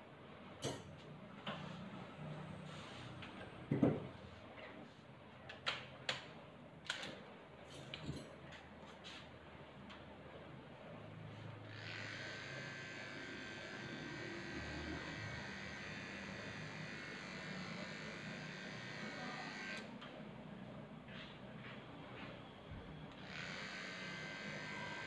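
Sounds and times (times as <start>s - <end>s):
electric clippers running: 11.7s - 19.9s, 23.2s - 25.0s.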